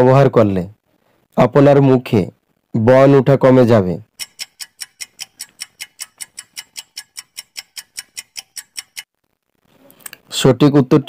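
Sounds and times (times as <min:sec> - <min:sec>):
countdown timer ticking: 0:04.1 - 0:09.1.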